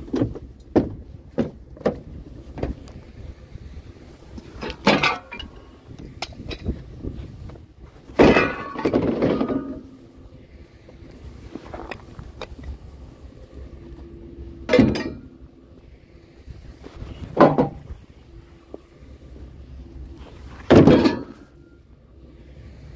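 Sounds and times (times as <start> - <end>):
rattling clatter: 4.4 - 6.8, 8.0 - 10.1, 14.6 - 15.4, 20.4 - 21.7.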